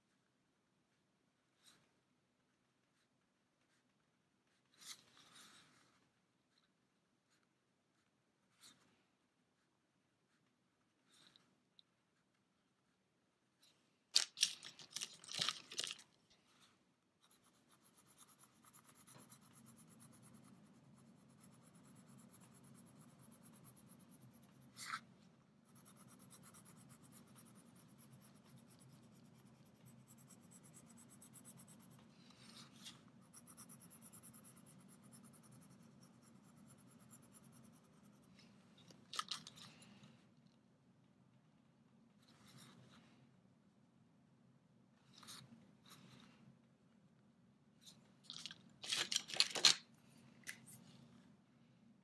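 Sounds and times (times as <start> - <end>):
faint low hum: 0.0 - 52.0
pencil scratching on plastic: 15.8 - 39.3.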